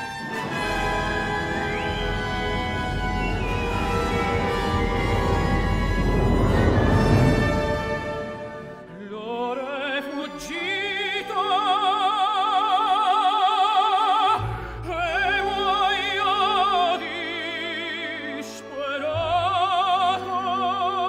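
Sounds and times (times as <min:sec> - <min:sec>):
orchestral accompaniment: 0:00.0 - 0:13.0, 0:14.3 - 0:21.0
operatic voice singing: 0:08.8 - 0:21.0.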